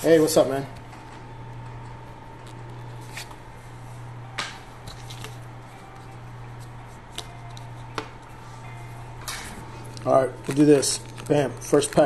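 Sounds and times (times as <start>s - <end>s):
steady low hum: 0.0s - 12.0s
cards clicking and rustling: 2.4s - 3.4s, 4.4s - 8.4s, 9.8s - 12.0s.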